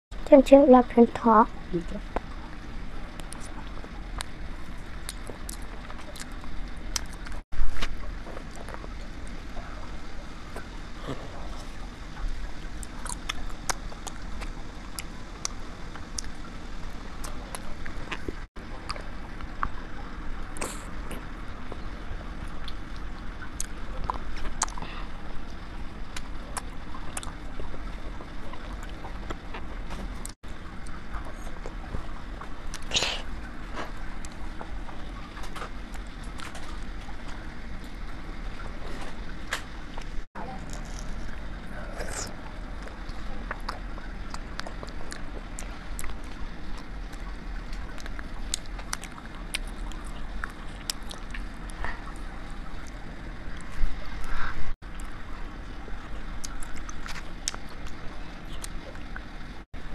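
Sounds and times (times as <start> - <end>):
steady low hum: 0.1 - 59.9
chewing wax candy: 12.8 - 16.4, 22.5 - 31.9, 40.0 - 53.8, 56.2 - 59.2.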